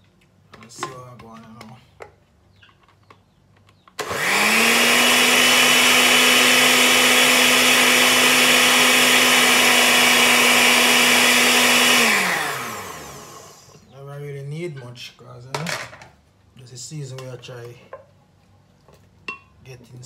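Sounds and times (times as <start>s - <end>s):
blender motor running: 4.0s - 13.8s.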